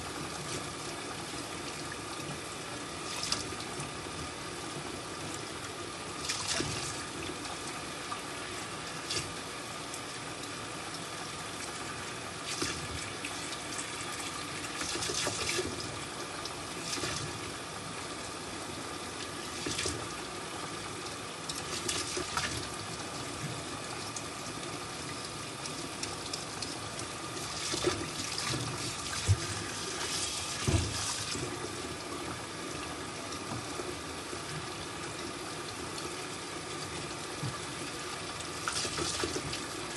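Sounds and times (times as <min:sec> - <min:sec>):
tap running into sink: 0:27.6 - 0:31.5.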